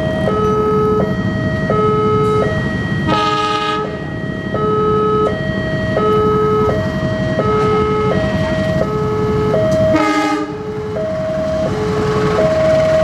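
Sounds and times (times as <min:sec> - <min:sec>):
diesel locomotive rumble: 0:00.0 - 0:13.0
two-tone crossing alarm: 0:00.0 - 0:13.0
locomotive horn blasts: 0:01.9 - 0:05.4, 0:09.8 - 0:10.7.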